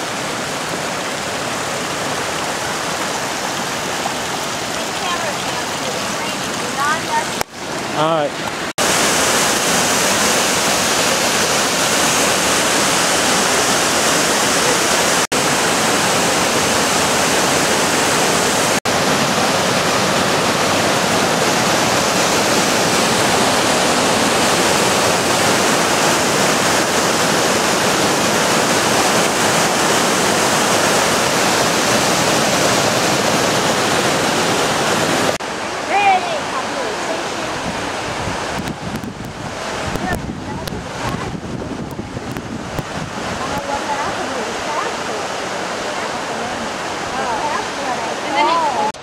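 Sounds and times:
river rushing over boulders: 0:00.0 - 0:49.0.

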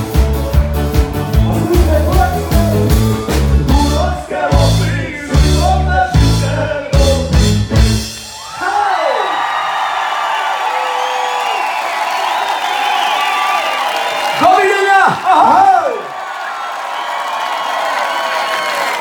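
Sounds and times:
folk band with fiddles: 0:00.0 - 0:08.1
strong drum beat: 0:00.0 - 0:08.2
man singing: 0:01.4 - 0:07.7.

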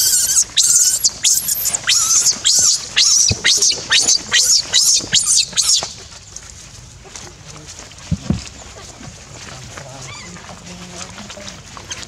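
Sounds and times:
infant monkey distress screams: 0:00.0 - 0:06.0.

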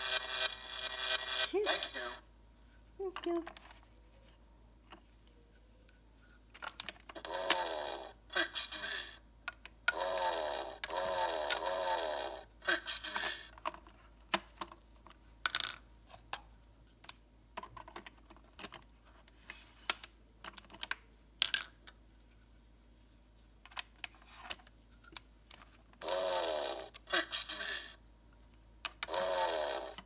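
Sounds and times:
wavering electronic toy sound: 0:00.0 - 0:02.2, 0:07.2 - 0:09.2, 0:09.9 - 0:13.4, 0:26.0 - 0:27.9, 0:29.1 - 0:30.0
plastic parts clicking and knocking: 0:06.5 - 0:07.6, 0:09.4 - 0:10.0, 0:13.1 - 0:18.9, 0:19.9 - 0:22.0.

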